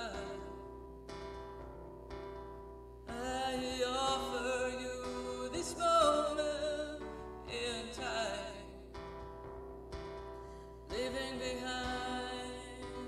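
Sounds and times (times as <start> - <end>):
worship song with singer: 0.0 - 0.8, 3.1 - 9.0, 10.6 - 13.0.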